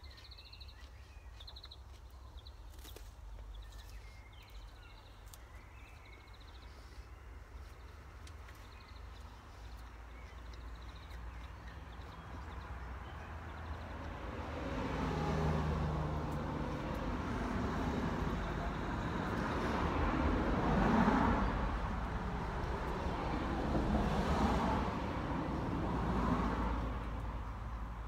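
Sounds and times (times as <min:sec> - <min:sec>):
car passing: 0:09.4 - 0:28.0.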